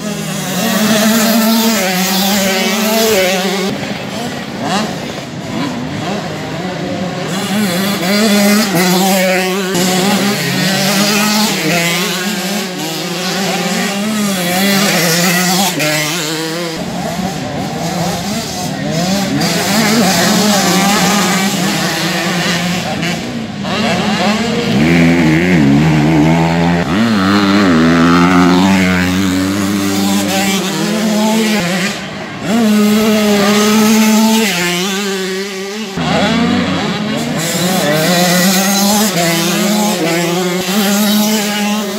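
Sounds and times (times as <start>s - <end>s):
motocross bike engines revving: 0.0s - 41.9s.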